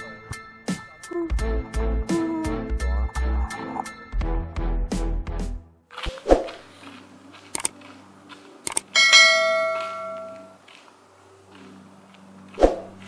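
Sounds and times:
short clicks: 7.5s - 7.8s, 8.6s - 8.9s
bright bell chime: 9.0s - 10.6s.

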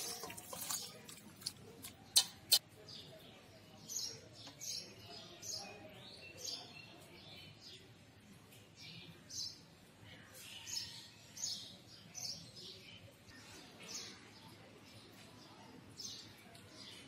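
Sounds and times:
metal utensils clinking on steel bowl: 0.0s - 2.6s.

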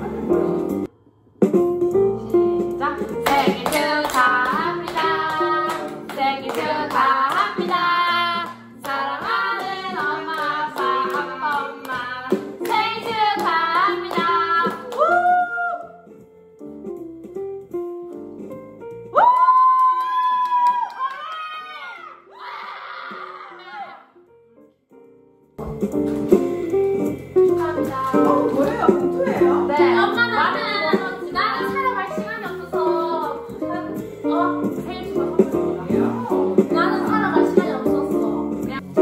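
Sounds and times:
group singing: 3.2s - 14.7s
people clapping along: 3.2s - 15.5s, 19.2s - 21.9s, 27.5s - 29.5s.

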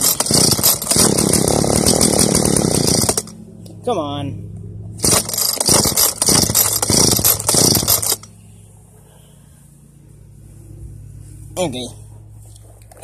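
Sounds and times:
string trimmer engine revving: 0.0s - 3.4s, 5.0s - 8.3s.

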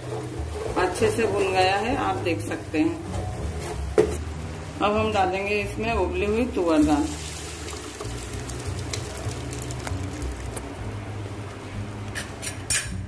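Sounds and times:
soft crackling sizzle in pan: 4.2s - 10.7s.

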